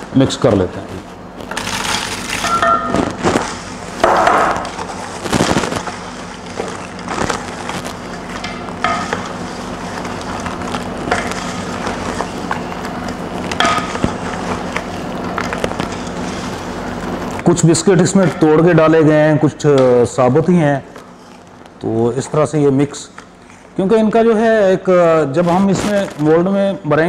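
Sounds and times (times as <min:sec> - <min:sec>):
wooden spoon scraping a pot: 0:04.7 - 0:16.7.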